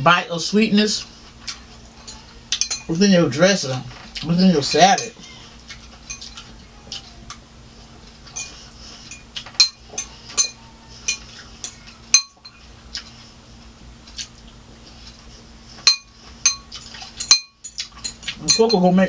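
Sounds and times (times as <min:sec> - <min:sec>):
metal fork clinking on cup: 0:02.0 - 0:03.0, 0:06.0 - 0:06.5, 0:08.3 - 0:12.6, 0:15.9 - 0:19.0.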